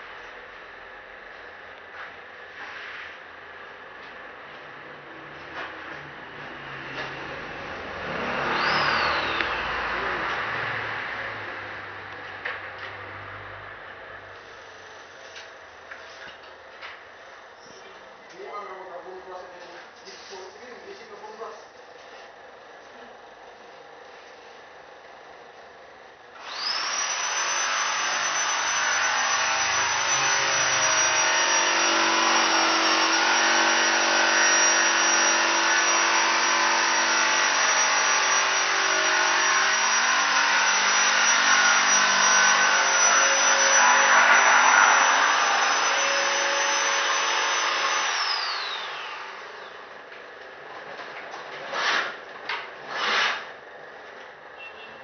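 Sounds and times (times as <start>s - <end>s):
power tool motor whining: 8.0s - 10.4s, 26.4s - 49.9s, 51.6s - 53.5s.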